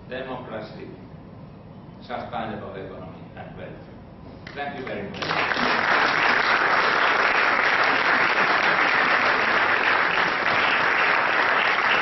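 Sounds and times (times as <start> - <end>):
audience applause: 5.2 - 12.0.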